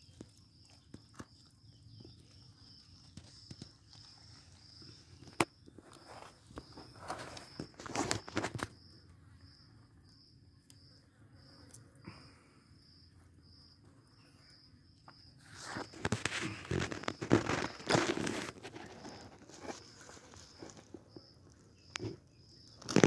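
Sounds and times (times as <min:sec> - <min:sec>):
tortoises crunching food: 0:00.0 - 0:08.8, 0:15.0 - 0:23.0.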